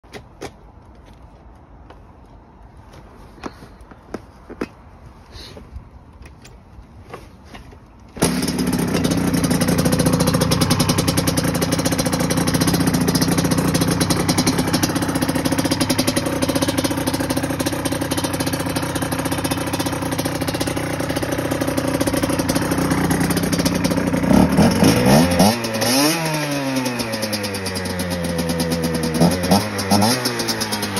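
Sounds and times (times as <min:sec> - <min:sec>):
scooter engine starting and revving: 0:08.1 - 0:30.9.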